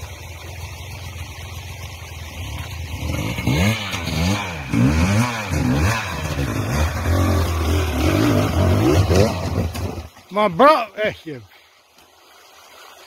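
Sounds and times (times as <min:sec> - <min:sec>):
dirt bike engine revving: 0:02.2 - 0:10.1.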